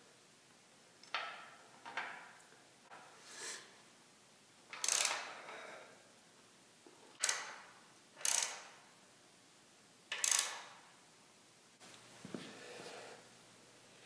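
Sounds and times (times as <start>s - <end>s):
ratchet wrench clicking: 4.7s - 5.3s, 7.2s - 8.8s, 10.1s - 10.8s.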